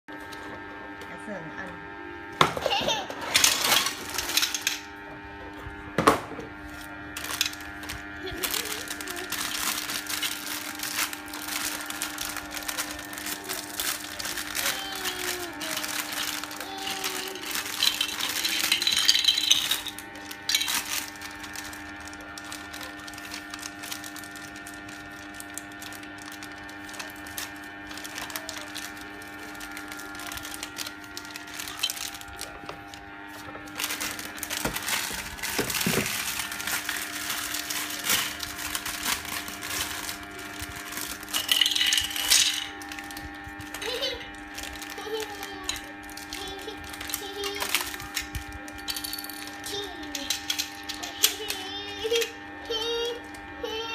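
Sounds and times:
steady hum: 0:00.1 - 0:53.9
plastic bags rustling: 0:02.8 - 0:04.9, 0:06.5 - 0:52.2
plastic bricks clattering: 0:08.4 - 0:29.1, 0:33.7 - 0:43.1.

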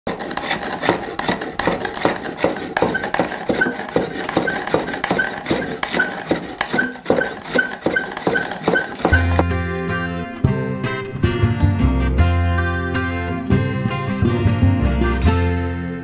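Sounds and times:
turning tool scraping wood: 0:00.1 - 0:09.5
short high squeak: 0:02.8 - 0:09.3.

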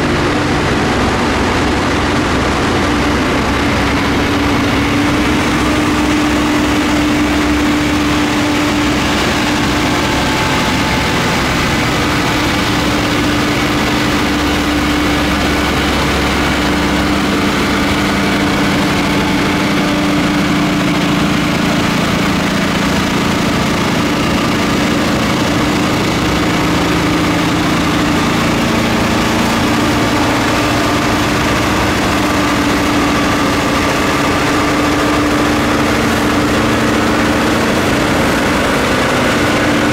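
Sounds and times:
diesel locomotive engines droning: 0:00.0 - 0:39.9
low engine tone: 0:00.0 - 0:39.9
snow thrower blasting snow: 0:00.0 - 0:39.9.

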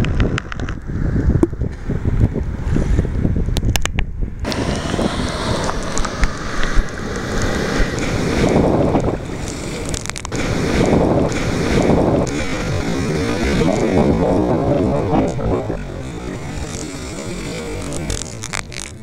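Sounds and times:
wind buffeting microphone: 0:00.0 - 0:19.0
low rumble of surf: 0:00.1 - 0:18.8
waves breaking and splashing: 0:04.5 - 0:18.9
sharp clicks: 0:05.6 - 0:19.0.

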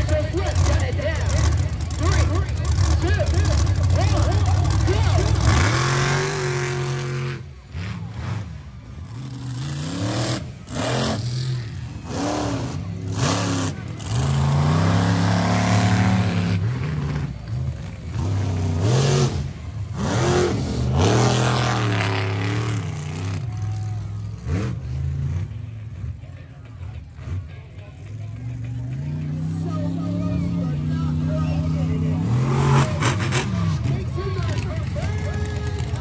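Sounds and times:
monster truck engine revving: 0:00.0 - 0:36.0.

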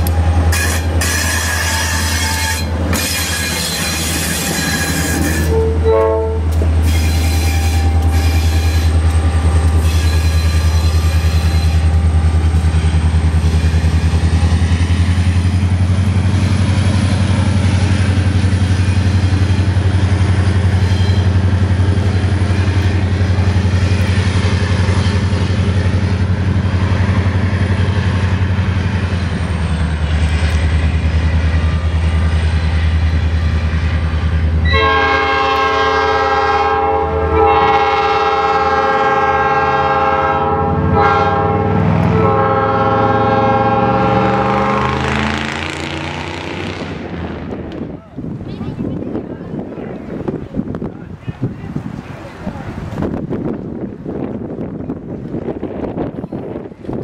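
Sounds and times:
diesel locomotive engine drone: 0:00.0 - 0:57.0
locomotive air horn blasts: 0:00.5 - 0:09.0, 0:34.6 - 0:45.0.

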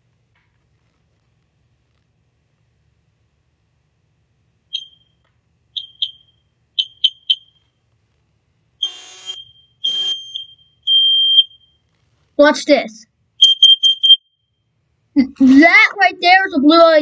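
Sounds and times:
smoke alarm beeping: 0:04.7 - 0:07.8, 0:08.8 - 0:11.9, 0:13.4 - 0:14.7.

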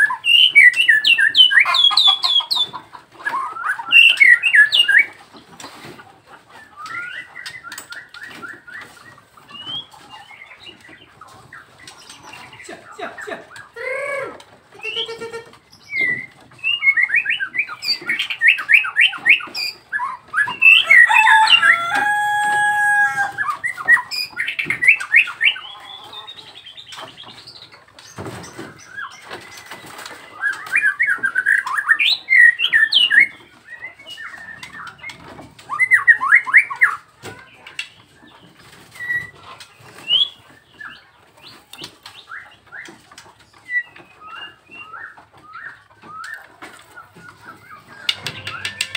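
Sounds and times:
bird singing: 0:00.0 - 0:05.2, 0:14.8 - 0:37.0, 0:38.0 - 0:48.9.

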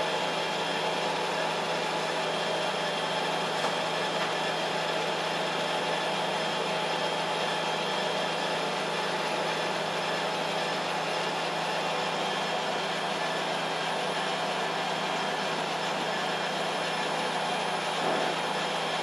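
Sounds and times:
engraving machine humming: 0:12.0 - 0:19.0.

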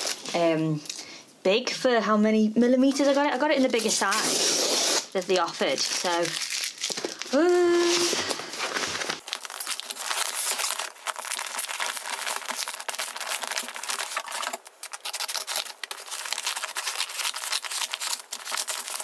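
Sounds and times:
paper mailer crinkling: 0:05.1 - 0:19.0.

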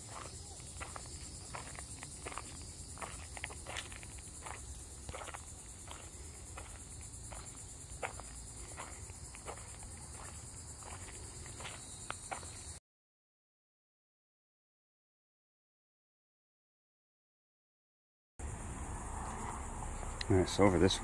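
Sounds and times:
footsteps crunching on sand: 0:00.0 - 0:12.8
insects droning: 0:00.0 - 0:12.8, 0:18.4 - 0:21.0.

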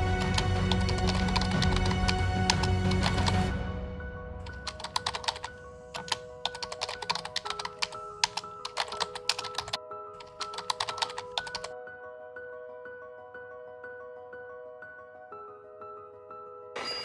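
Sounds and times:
soft music with held notes: 0:00.0 - 0:17.0
keyboard typing clicks: 0:00.3 - 0:03.4, 0:04.5 - 0:11.7.

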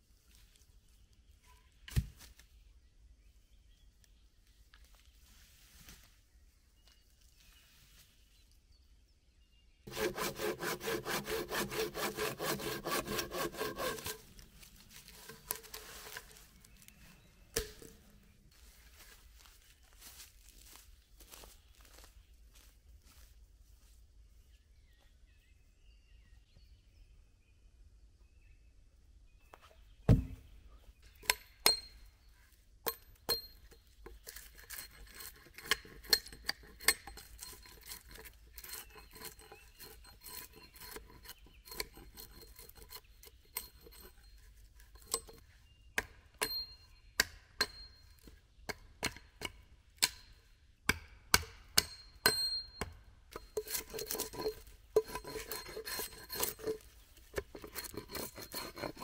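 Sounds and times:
hatchet chopping wood: 0:09.9 - 0:14.2, 0:17.5 - 0:18.0, 0:30.1 - 0:30.4, 0:46.0 - 0:48.0, 0:48.7 - 0:50.2, 0:50.9 - 0:56.8.

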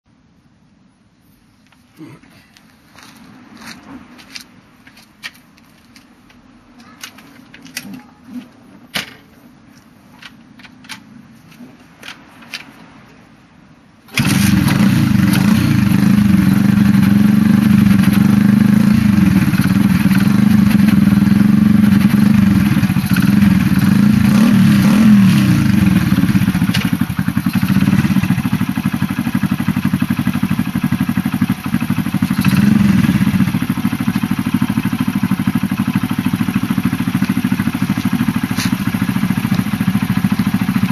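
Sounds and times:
motorcycle engine starting and running: 0:14.0 - 0:40.9.

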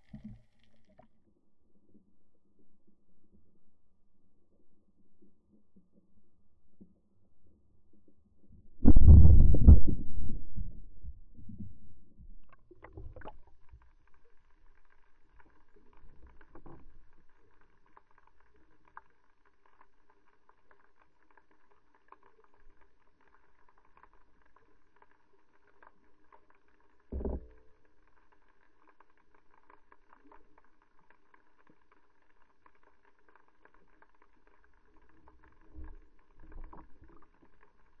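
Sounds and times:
underwater water noise: 0:00.0 - 0:38.0
speargun shot underwater: 0:08.8 - 0:13.4.

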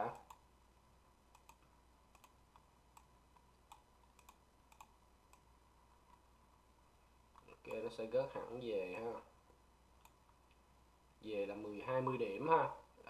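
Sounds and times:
faint steady hum: 0:00.0 - 0:13.0
computer mouse clicks: 0:00.1 - 0:00.4, 0:01.3 - 0:06.2, 0:10.0 - 0:10.6.

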